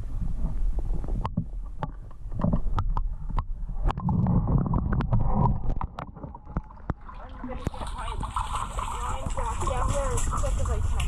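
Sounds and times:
muffled underwater rumble: 0:00.0 - 0:11.0
sharp clicks and knocks: 0:01.0 - 0:07.0.

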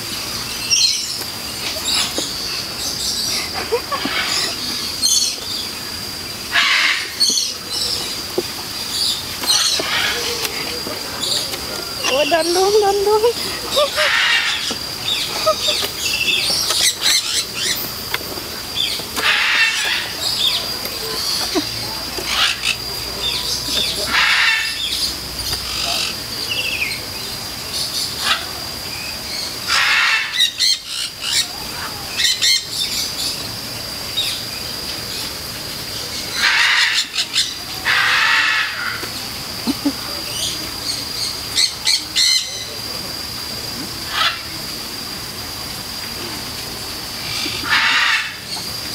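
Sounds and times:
cockatoos screeching harshly: 0:06.5 - 0:08.0, 0:08.7 - 0:17.8, 0:18.8 - 0:25.0, 0:29.7 - 0:32.7, 0:36.3 - 0:39.0, 0:47.3 - 0:48.8.

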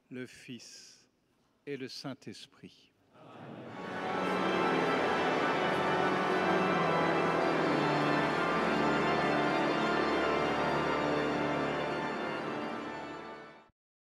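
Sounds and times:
pipe organ playing: 0:03.7 - 0:13.7.

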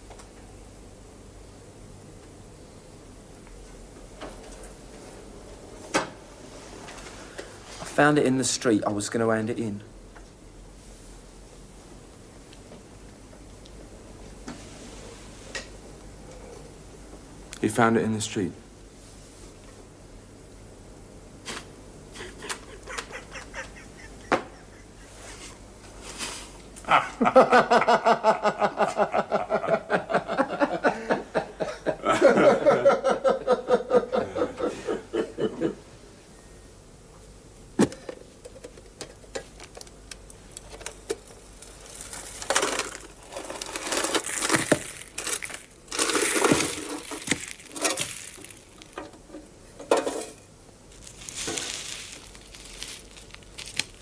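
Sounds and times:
loud laughter: 0:22.2 - 0:25.3, 0:26.8 - 0:35.8
rustling and crinkling: 0:38.6 - 0:54.0.

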